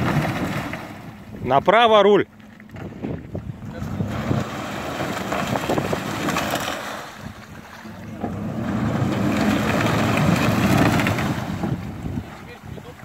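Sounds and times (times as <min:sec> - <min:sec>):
wheels spinning in mud: 0:00.0 - 0:01.2, 0:02.6 - 0:13.0
car engine revving: 0:08.0 - 0:12.0.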